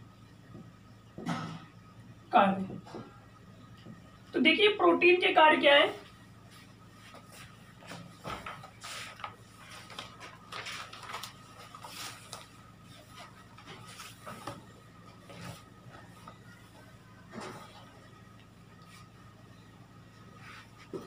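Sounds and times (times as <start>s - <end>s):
low electrical hum: 0.0s - 21.0s
rustles and light knocks: 6.5s - 18.1s.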